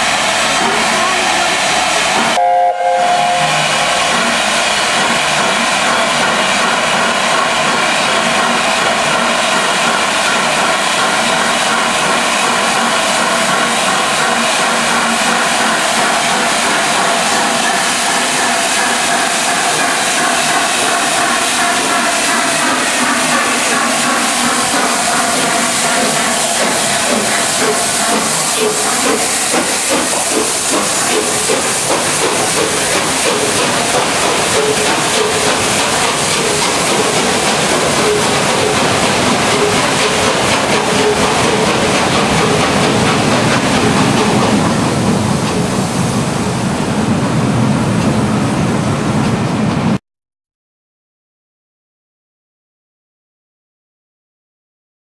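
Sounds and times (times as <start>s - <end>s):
steam engine exhaust beats: 0.0s - 49.8s
steam hiss: 9.5s - 44.9s.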